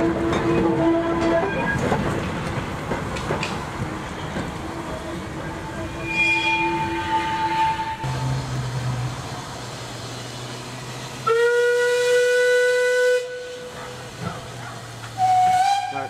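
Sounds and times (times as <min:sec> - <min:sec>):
steam locomotive whistle: 0:05.9 - 0:08.1, 0:11.2 - 0:13.8, 0:15.2 - 0:16.0.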